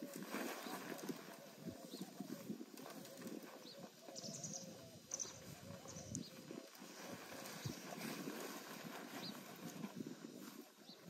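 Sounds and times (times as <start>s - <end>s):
birds chirping: 0.0s - 11.0s
tent fabric and poles rustling: 0.0s - 11.0s.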